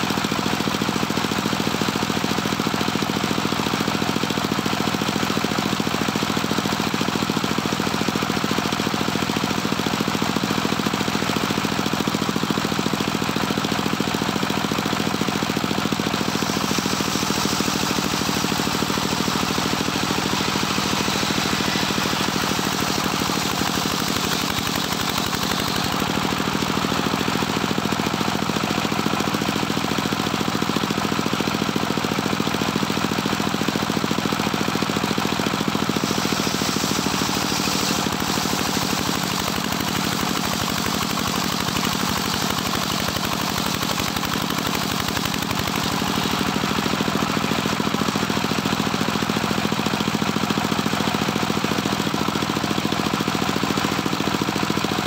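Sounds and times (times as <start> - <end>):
saw bench engine running: 0.0 - 55.0
saw blade cutting wood: 14.1 - 28.4, 34.6 - 48.9.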